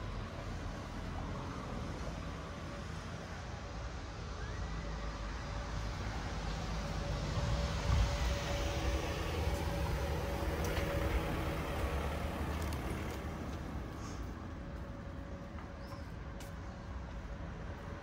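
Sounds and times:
motor vehicle passing: 5.6 - 14.8.

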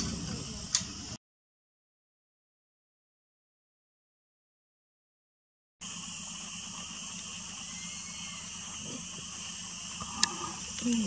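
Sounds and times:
insects buzzing: 0.0 - 1.2, 5.8 - 11.0.

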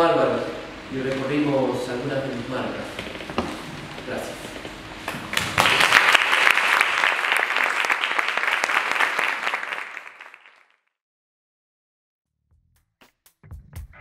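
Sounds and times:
audience applauding: 5.1 - 10.8.

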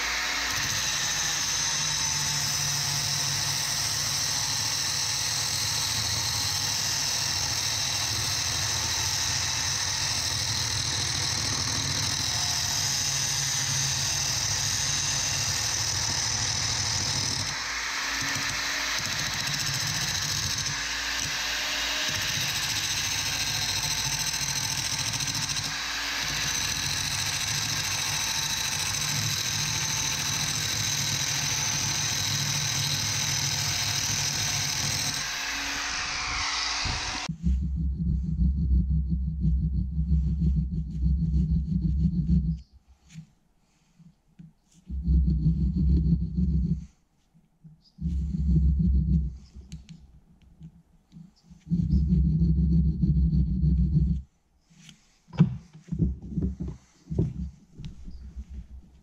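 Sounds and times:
angle grinder grinding steel: 0.0 - 37.3.

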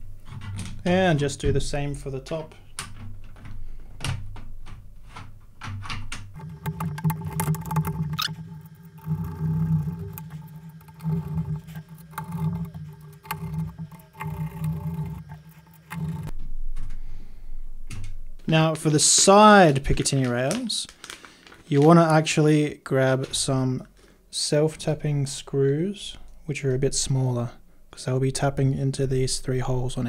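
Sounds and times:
steady low hum: 6.3 - 18.9.

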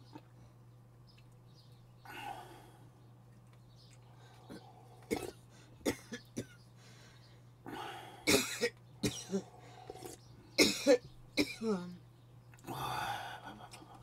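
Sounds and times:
person coughing: 5.1 - 6.6, 8.3 - 9.5, 10.6 - 11.9.

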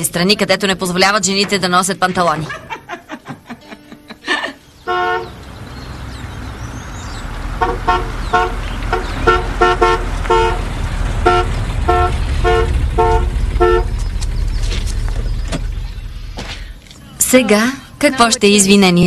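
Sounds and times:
low engine rumble: 4.4 - 19.0
car horn honking: 4.8 - 5.4, 7.5 - 14.4.

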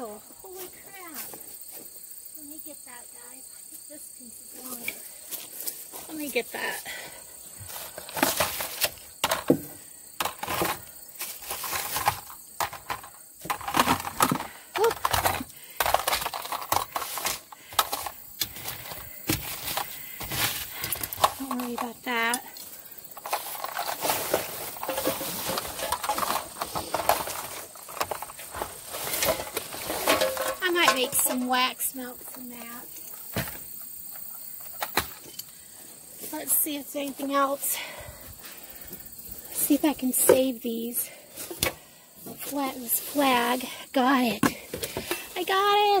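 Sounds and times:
small hard objects clattering: 7.6 - 35.3.

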